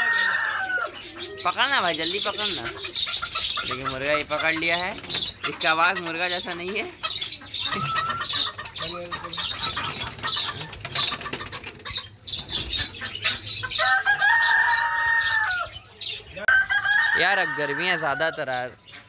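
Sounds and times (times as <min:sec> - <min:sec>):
rooster crowing: 0:00.0 - 0:01.0, 0:13.7 - 0:15.7, 0:16.5 - 0:18.4
chickens clucking: 0:00.0 - 0:19.0
wings flapping: 0:07.8 - 0:13.0.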